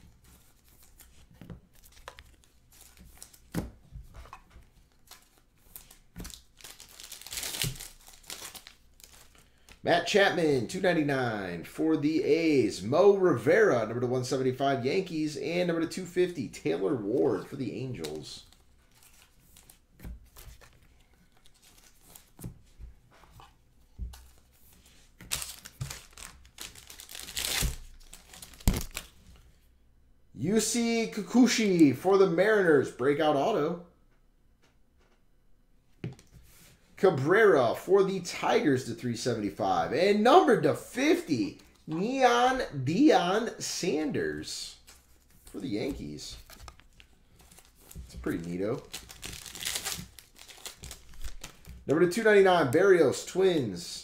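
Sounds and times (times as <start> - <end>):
foil wrappers crinkling: 4.8 - 9.8, 25.2 - 29.2, 45.0 - 51.8.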